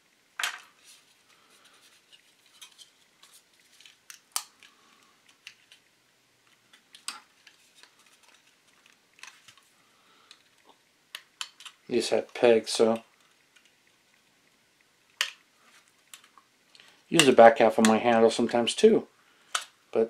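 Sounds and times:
plastic parts clicking and tapping: 11.1s - 13.8s.

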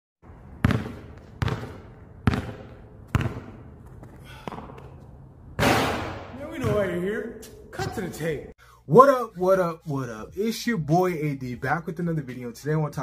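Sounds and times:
basketball bouncing on concrete: 0.4s - 6.0s, 6.6s - 7.0s.

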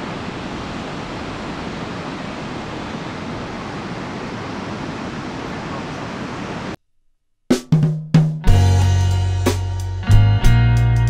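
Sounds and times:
ocean surf rushing: 0.0s - 6.8s
wind: 0.0s - 6.8s.

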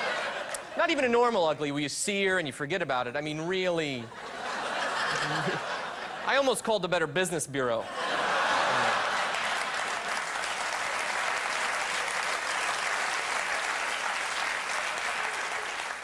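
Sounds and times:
audience applauding: 8.1s - 16.0s.

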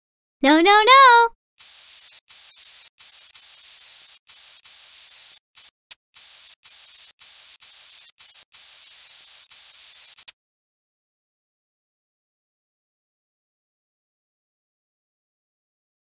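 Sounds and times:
spray can hiss sound effect: 1.6s - 10.3s.

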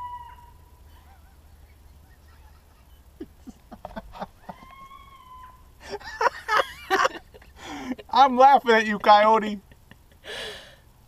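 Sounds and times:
police siren: 0.0s - 0.7s
coyotes yipping and howling: 0.0s - 6.3s.

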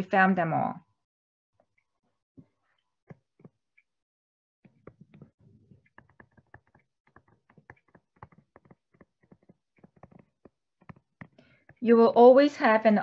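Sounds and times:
stylus tapping on tablet screen: 2.4s - 3.6s, 4.7s - 11.8s.

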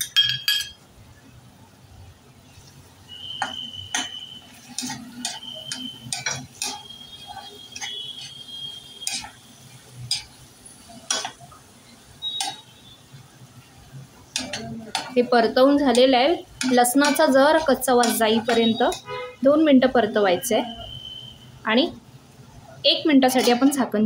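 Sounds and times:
spatula scraping steel pan: 3.9s - 9.4s, 15.9s - 19.2s.

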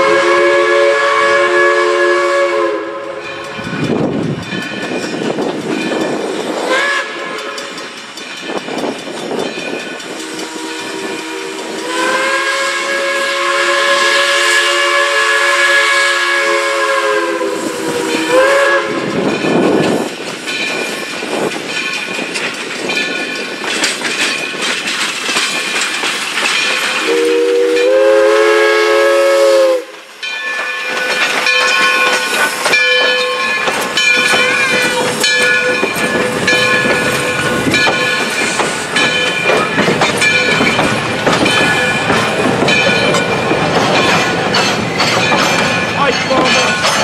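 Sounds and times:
steam locomotive chime whistle: 0.0s - 5.0s, 5.8s - 8.4s, 9.6s - 19.8s, 26.6s - 44.3s
train wheels clanking over rail joints: 2.8s - 15.0s, 16.9s - 28.4s, 29.9s - 47.0s.

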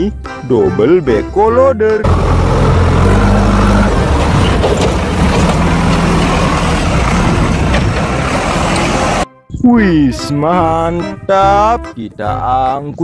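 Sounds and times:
diesel engine running: 2.0s - 9.2s.

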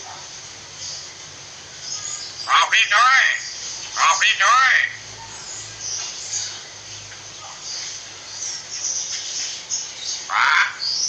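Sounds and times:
loud bird call: 1.8s - 5.0s, 10.1s - 11.0s
bird chirping: 5.2s - 11.0s.

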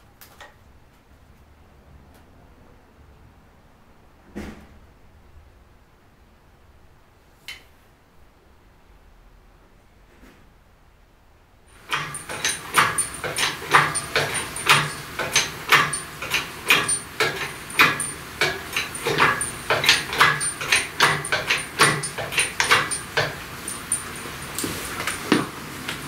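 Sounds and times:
hoist chain squeaking and creaking: 11.9s - 25.3s.

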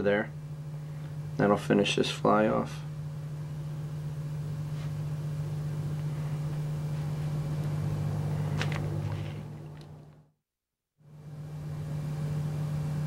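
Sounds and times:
steady low hum: 0.0s - 10.3s, 11.0s - 13.0s.

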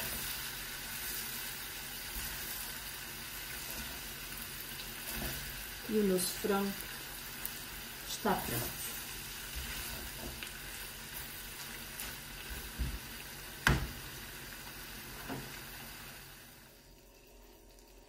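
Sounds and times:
spatula stirring food: 0.0s - 5.9s, 8.3s - 13.2s
food sizzling in a frying pan: 0.0s - 18.0s.

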